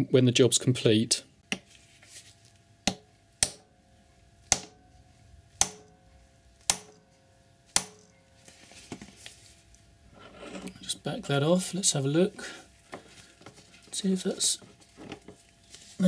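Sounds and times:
hammer striking metal riveter: 2.9s - 3.7s, 4.5s - 4.8s, 5.6s - 6.0s, 6.7s - 7.1s, 7.8s - 8.1s.

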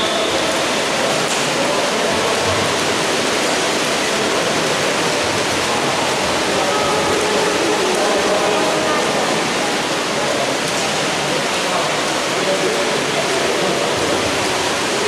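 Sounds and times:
water splashing from swimmers: 0.0s - 15.0s.

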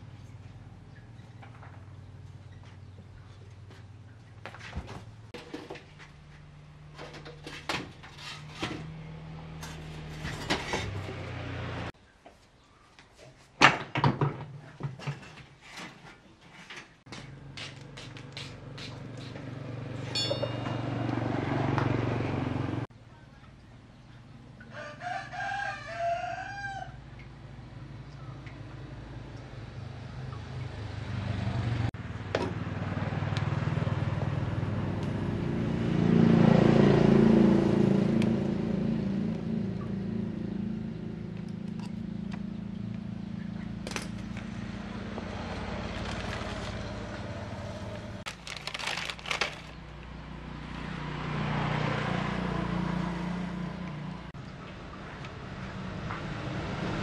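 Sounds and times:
motorcycle engine revving: 8.5s - 12.0s, 18.6s - 22.9s, 28.8s - 48.3s, 48.9s - 54.4s
rooster crowing: 24.7s - 27.1s.

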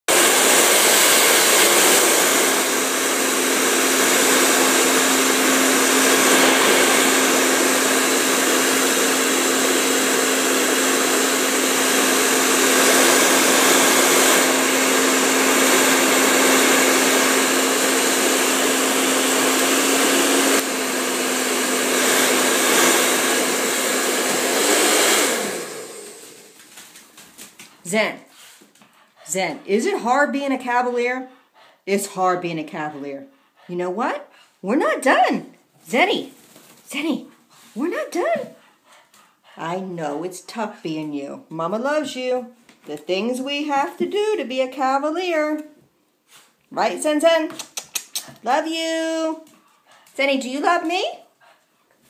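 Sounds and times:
blow dryer running: 0.0s - 27.2s, 37.8s - 38.6s, 48.4s - 51.1s.

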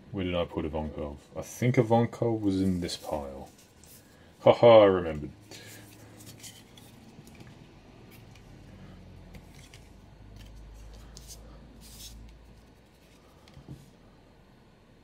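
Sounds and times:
cards swishing: 5.6s - 8.6s, 9.2s - 13.7s.

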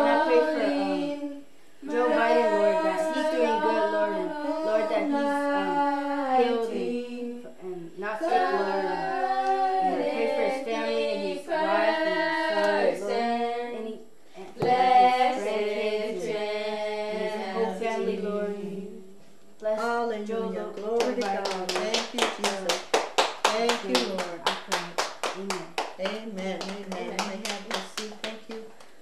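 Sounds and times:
woman singing: 0.0s - 16.4s
voices singing a hymn: 0.0s - 22.6s.

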